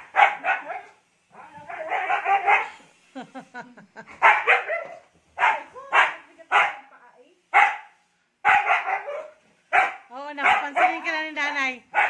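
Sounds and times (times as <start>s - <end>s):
dog yipping: 0.2s - 2.8s, 4.2s - 6.8s, 8.5s - 11.0s.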